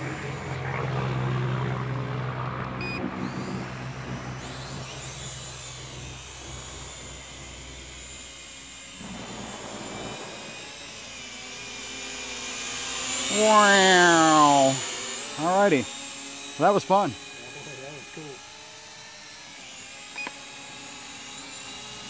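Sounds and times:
drone propellers whirring: 0:00.0 - 0:22.0.

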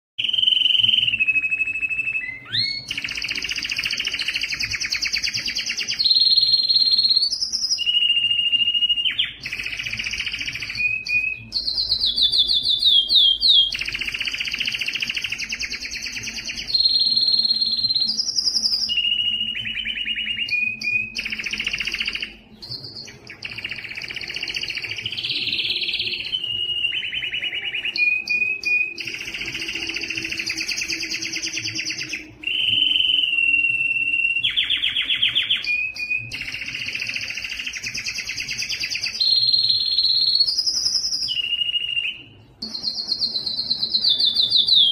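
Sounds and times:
canary singing trills: 0:00.2 - 0:44.9.

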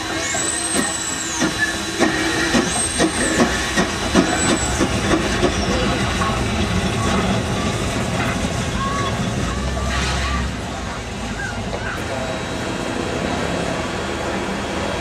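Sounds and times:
steam hissing: 0:00.0 - 0:10.8
locomotive running gear chuffing: 0:00.1 - 0:15.0.

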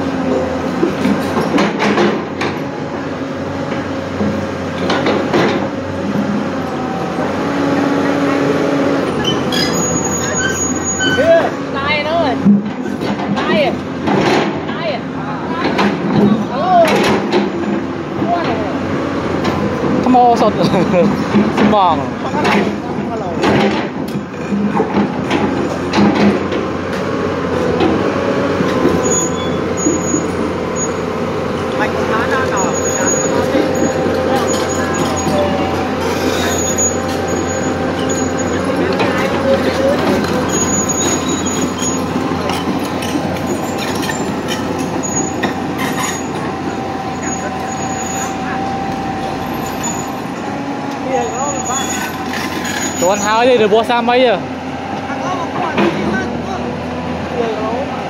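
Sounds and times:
excavator engine and hydraulic hum: 0:00.0 - 0:58.0.

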